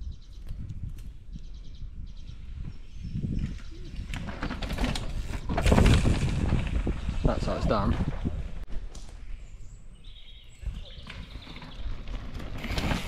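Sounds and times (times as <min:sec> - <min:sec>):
bike tyres rolling over dirt: 0:02.4 - 0:09.2, 0:10.5 - 0:13.0.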